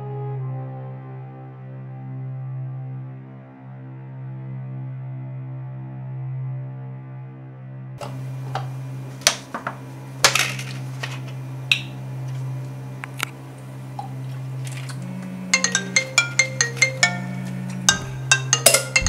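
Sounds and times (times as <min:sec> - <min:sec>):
low music drone: 0:00.0 - 0:19.0
cups and containers clinking: 0:08.0 - 0:12.4, 0:14.0 - 0:19.0
plinking marimba-like tune: 0:15.5 - 0:19.0.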